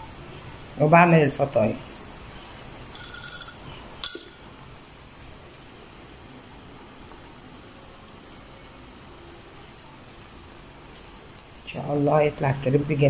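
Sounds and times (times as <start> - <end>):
meat simmering in a frying pan: 0.0 - 3.0, 3.6 - 13.0
sharp metallic clink: 3.0 - 4.5.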